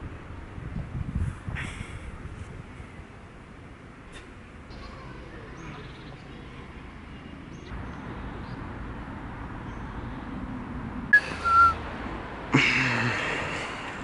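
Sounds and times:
distant traffic hum: 0.0 - 14.0
loud whistle-like note: 11.2 - 11.8.

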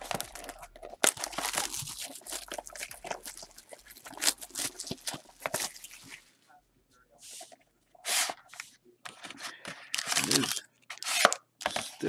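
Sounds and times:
plastic shrink wrap crinkling: 0.0 - 6.4, 9.8 - 10.6.

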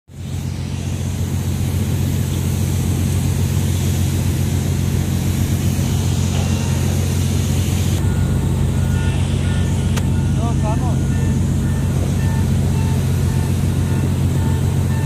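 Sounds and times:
hiss: 0.1 - 8.0
machinery droning: 0.1 - 15.0.

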